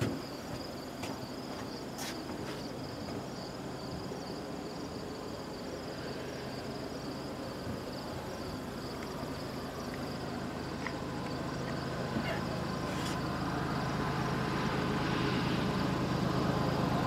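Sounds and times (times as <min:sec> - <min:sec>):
insects trilling: 0:00.0 - 0:17.0
low steady rumble: 0:02.8 - 0:17.0.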